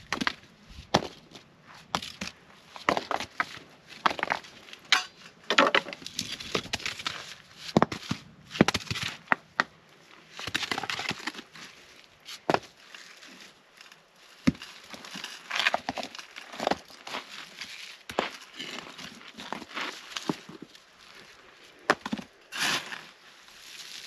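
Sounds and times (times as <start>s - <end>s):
shovel scraping into dirt: 22.5s - 23.1s.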